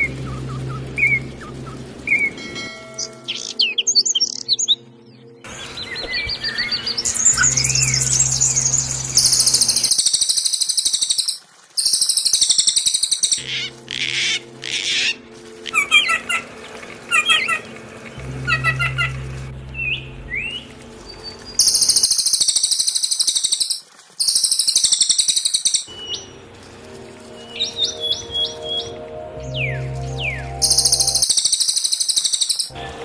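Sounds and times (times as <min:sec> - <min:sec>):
songbird chirps and whistles: 0:00.0 - 0:16.4, 0:19.7 - 0:26.3, 0:27.4 - 0:32.8
fast high-pitched bird trill: 0:07.3 - 0:15.1, 0:21.6 - 0:26.3, 0:30.2 - 0:32.7.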